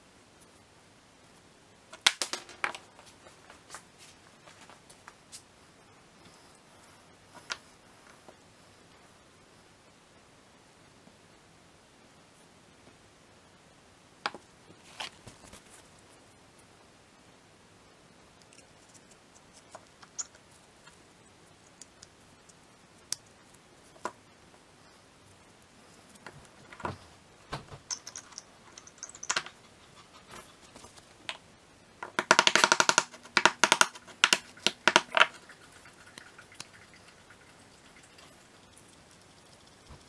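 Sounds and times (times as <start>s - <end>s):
metal parts clicking and knocking: 27.7s - 29.6s, 32.0s - 35.4s.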